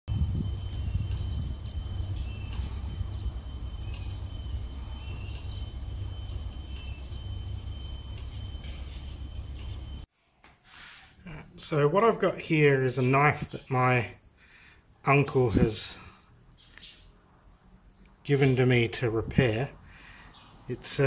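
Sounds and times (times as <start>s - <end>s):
continuous low rumble: 0.1s - 10.1s
high insect drone: 0.1s - 10.1s.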